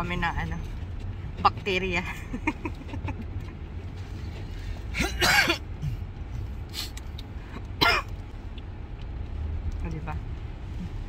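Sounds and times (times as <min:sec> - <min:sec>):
steady low hum: 0:00.0 - 0:11.0
person coughing: 0:04.9 - 0:06.0, 0:07.8 - 0:08.1.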